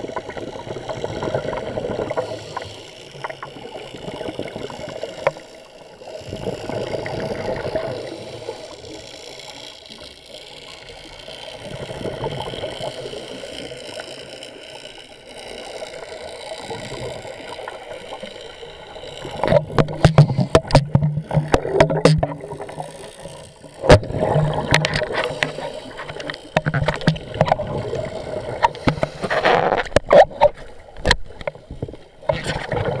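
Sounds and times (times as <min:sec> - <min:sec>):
underwater scuba breathing: 0:00.0 - 0:30.9
exhaled bubbles: 0:06.2 - 0:08.4, 0:16.7 - 0:30.5.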